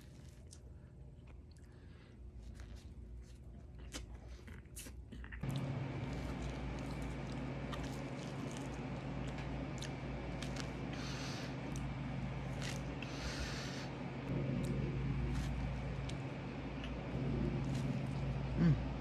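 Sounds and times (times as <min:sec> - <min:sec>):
chewing and mouth sounds: 0:00.0 - 0:13.7, 0:14.3 - 0:19.0
low hum: 0:05.2 - 0:19.0.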